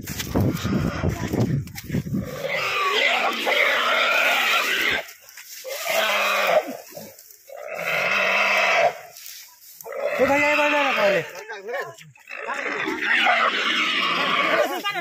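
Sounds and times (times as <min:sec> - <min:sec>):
wild boar squealing: 0:02.1 - 0:09.1, 0:09.8 - 0:11.4, 0:12.3 - 0:15.0.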